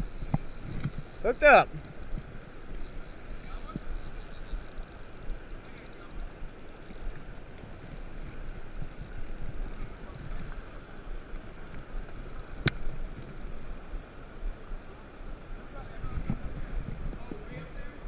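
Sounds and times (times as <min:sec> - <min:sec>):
river water flowing: 0:00.0 - 0:18.0
wind on microphone: 0:15.9 - 0:18.0.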